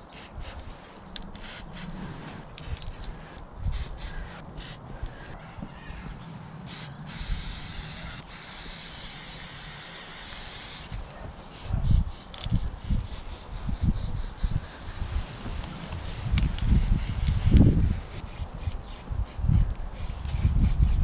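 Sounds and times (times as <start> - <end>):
spray paint can spraying: 0.0 - 5.3, 6.7 - 21.0.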